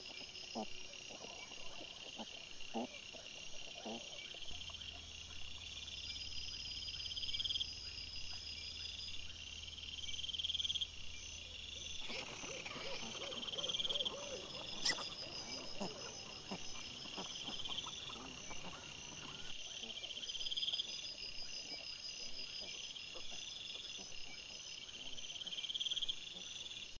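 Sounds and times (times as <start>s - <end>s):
night insects trilling: 0.0s - 27.0s
piglets squeaking: 12.0s - 19.3s
wild boar grunting: 12.0s - 19.5s.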